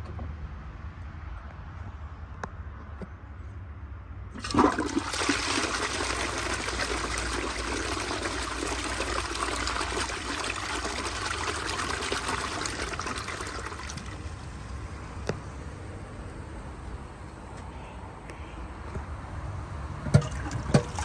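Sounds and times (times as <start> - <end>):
toilet flushing: 4.4 - 14.8, 20.0 - 21.0.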